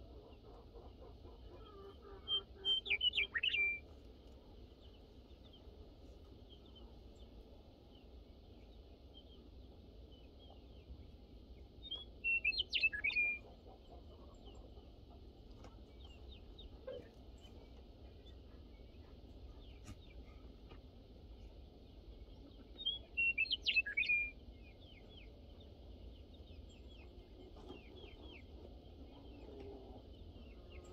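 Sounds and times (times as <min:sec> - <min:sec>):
faint bird chirps: 0:01.5 - 0:03.8.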